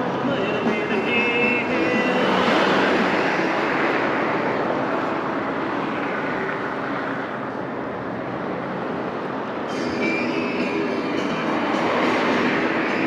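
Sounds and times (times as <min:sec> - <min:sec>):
passing vehicle rushing: 0:00.0 - 0:13.0.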